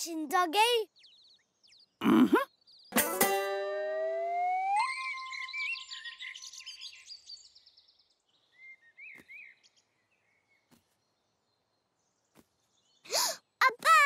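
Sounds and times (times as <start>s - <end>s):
cartoon birds chirping: 0.6s - 7.3s
rising tone glide: 3.4s - 6.0s.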